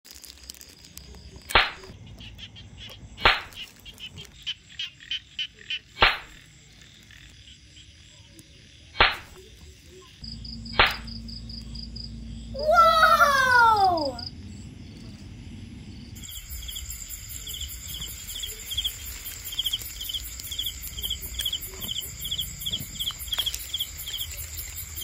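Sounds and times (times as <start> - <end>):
high insect chirring: 0.1 - 25.0
frogs croaking: 1.2 - 25.0.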